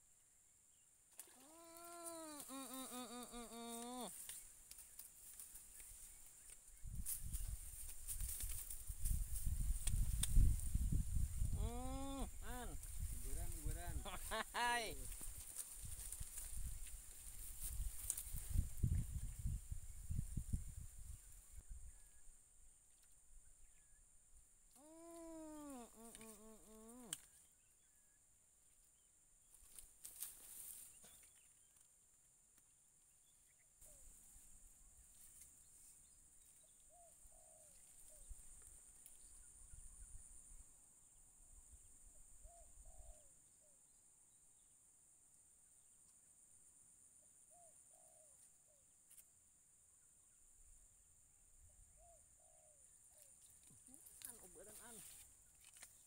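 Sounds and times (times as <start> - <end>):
high insect drone: 0.1 - 28.2
faint bird call: 1.2 - 4.5, 24.7 - 27.9, 42.4 - 43.8.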